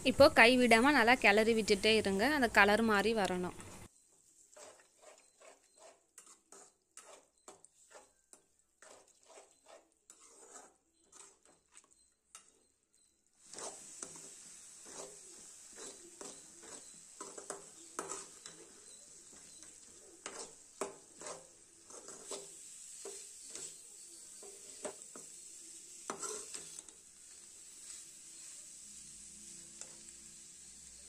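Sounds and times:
frying sizzle in oil: 0.0s - 31.0s
metal ladle scraping steel pan: 4.5s - 12.7s, 13.4s - 23.8s, 26.1s - 28.0s.

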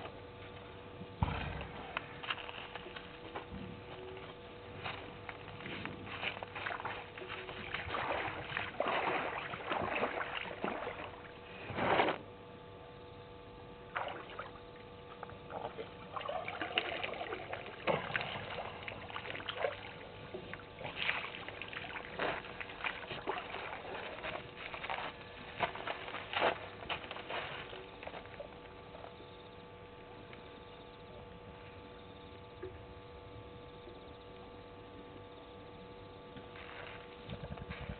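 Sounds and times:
elephant splashing water: 6.5s - 11.4s, 15.5s - 28.0s.

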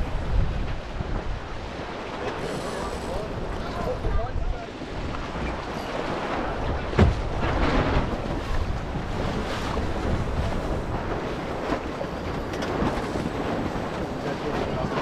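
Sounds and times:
water rushing past hull: 0.0s - 15.0s
wind buffeting microphone: 0.0s - 15.0s
loud thump: 6.9s - 8.0s.

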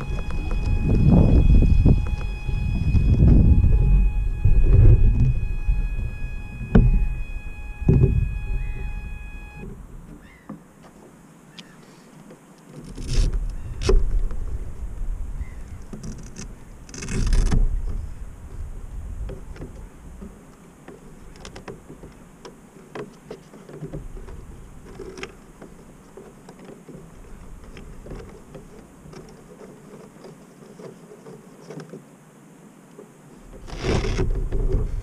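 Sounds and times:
rushing noise: 0.0s - 9.7s.

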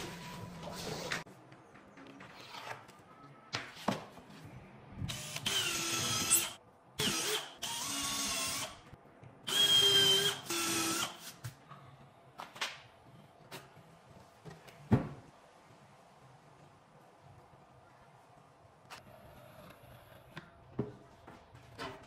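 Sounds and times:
drill driving screws into wood: 5.1s - 8.8s.

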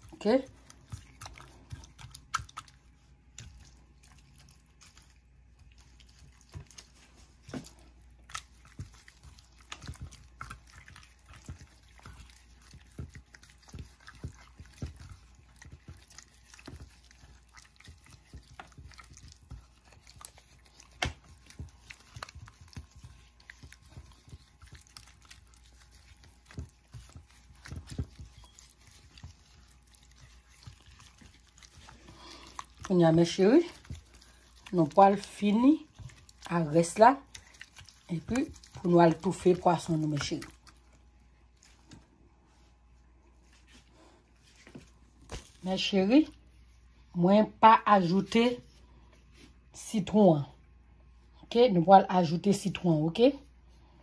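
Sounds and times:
wet smacks and clicks: 0.0s - 42.1s.

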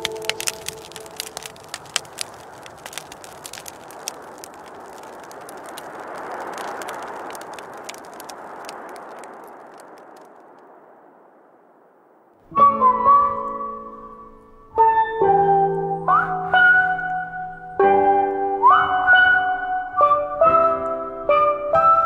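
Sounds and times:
soft rushing night ambience: 0.0s - 12.5s
campfire crackling and popping: 0.0s - 18.8s.

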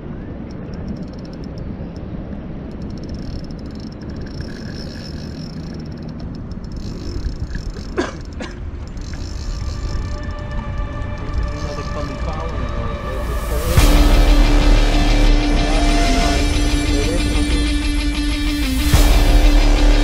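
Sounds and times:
fishing reel ticking: 0.5s - 12.8s.

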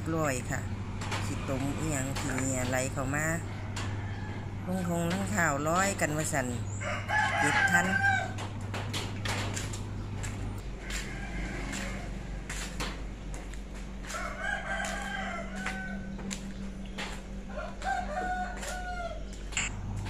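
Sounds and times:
rooster crowing: 6.7s - 8.5s, 10.6s - 12.8s, 14.0s - 19.5s.

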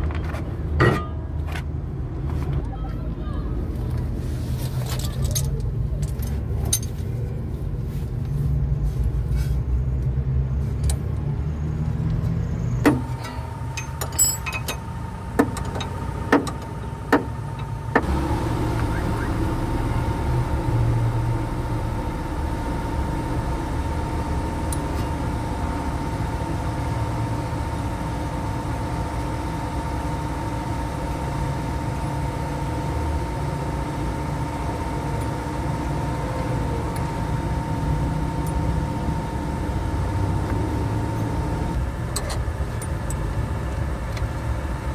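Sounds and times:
steady low hum: 12.5s - 44.9s
wrench clinking on metal bolts: 13.1s - 16.6s
thin whine: 16.8s - 43.2s.

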